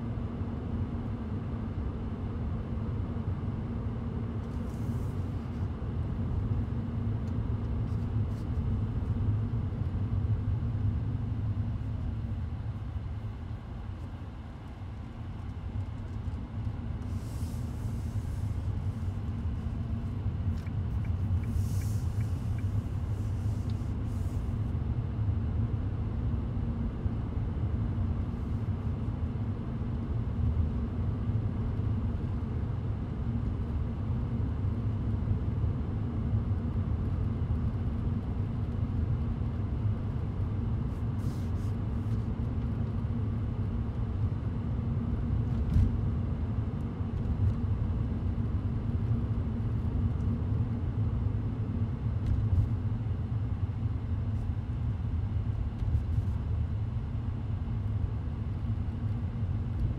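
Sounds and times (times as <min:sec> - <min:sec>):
engine and tyre rumble: 0:00.1 - 0:59.9
short hissy bursts: 0:21.4 - 0:24.5.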